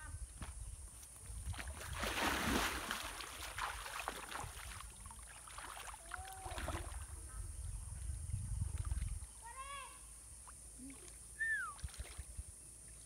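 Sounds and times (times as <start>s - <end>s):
water splashing as person wades: 1.4s - 7.1s, 11.8s - 12.4s.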